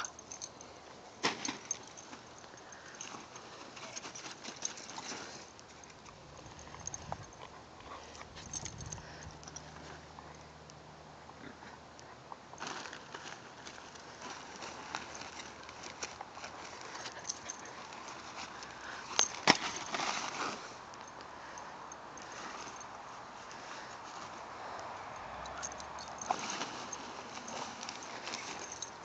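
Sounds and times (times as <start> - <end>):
puppies rustling in fabric tunnel: 1.2 - 10.0, 12.6 - 20.8, 25.3 - 29.0.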